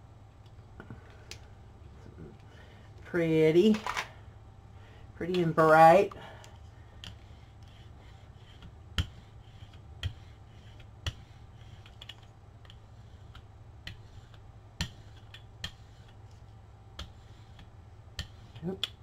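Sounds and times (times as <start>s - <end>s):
steady low hum: 0.0s - 19.0s
painting supplies clicking and tapping: 8.6s - 14.0s.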